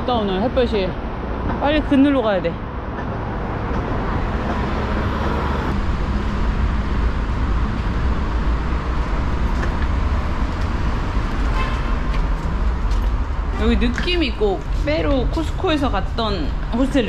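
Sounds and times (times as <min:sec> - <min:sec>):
road traffic: 0:00.0 - 0:17.0
suitcase wheels rolling on pavement: 0:08.9 - 0:17.0.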